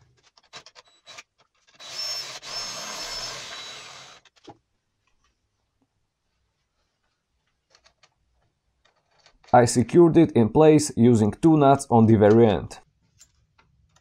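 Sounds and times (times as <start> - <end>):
cordless drill whining: 0.8 - 4.3.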